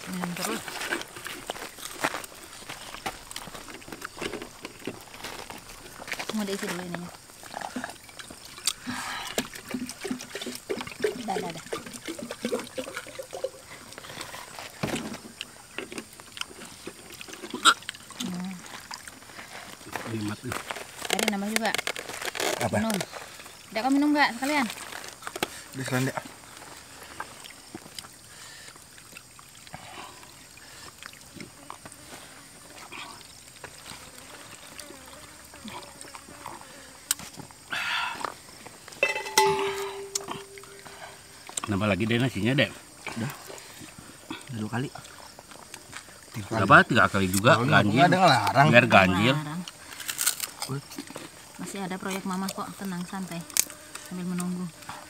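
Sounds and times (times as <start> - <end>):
water trickling into cups: 0.0 - 20.5, 22.7 - 36.8, 37.4 - 54.6
people eating with hands: 0.0 - 55.0
coconut shells knocking: 39.0 - 41.0.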